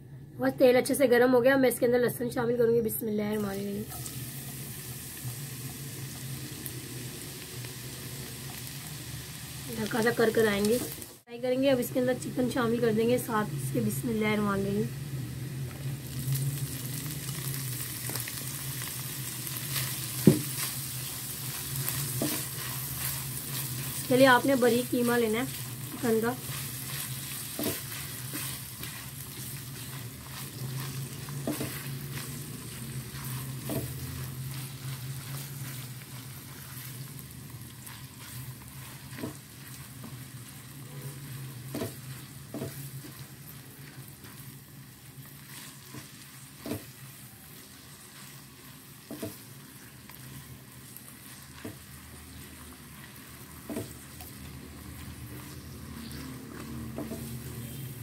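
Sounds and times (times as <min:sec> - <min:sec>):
chicken sizzling in a wok: 0:02.3 - 0:58.0
spatula scraping and tapping pan: 0:21.5 - 0:24.1, 0:25.5 - 0:37.0, 0:37.8 - 0:40.2, 0:41.0 - 0:43.3, 0:49.0 - 0:49.5, 0:51.4 - 0:54.4, 0:55.0 - 0:57.9.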